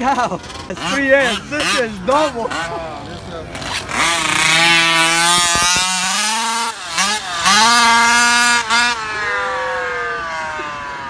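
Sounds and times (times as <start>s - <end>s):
electric rc car motor whining: 3.1s - 11.0s.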